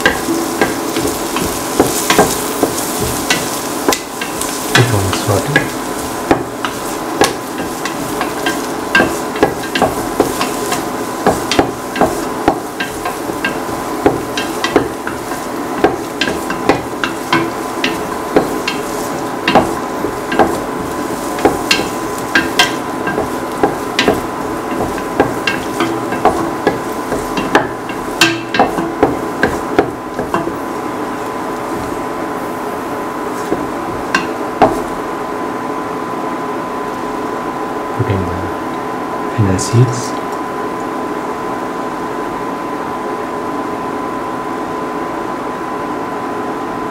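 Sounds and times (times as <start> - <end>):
utensil scraping and knocking pan: 0.0 - 30.6
onions sizzling in oil: 0.0 - 37.9.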